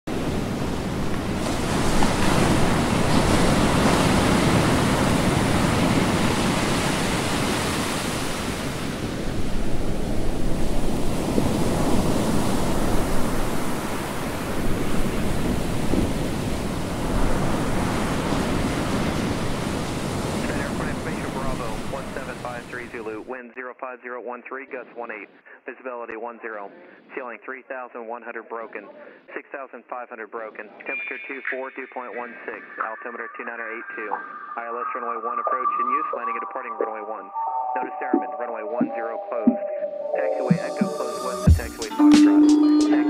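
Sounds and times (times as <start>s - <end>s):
ocean waves rushing: 0.1s - 23.2s, 32.1s - 42.0s.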